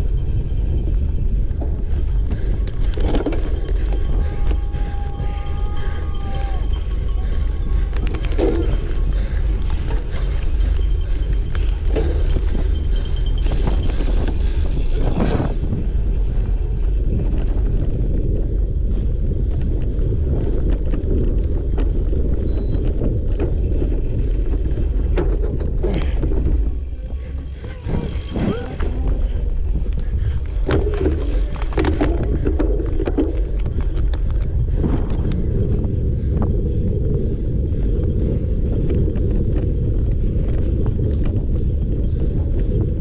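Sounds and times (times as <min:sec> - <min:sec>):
bike rattling on rough ground: 0:00.0 - 0:43.0
wind buffeting microphone: 0:00.0 - 0:43.0
short high beep: 0:22.5 - 0:22.8.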